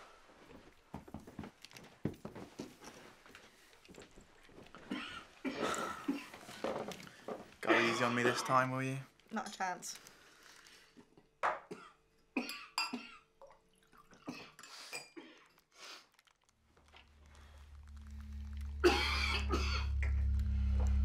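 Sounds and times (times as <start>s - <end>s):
man coughing: 7.6s - 8.6s, 18.8s - 19.9s
low film score drone: 17.2s - 21.0s.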